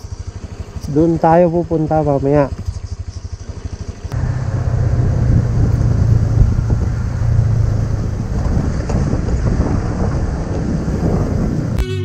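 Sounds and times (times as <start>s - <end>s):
motorcycle engine running: 0.0s - 12.0s
wind rumbling on microphone: 4.1s - 11.8s.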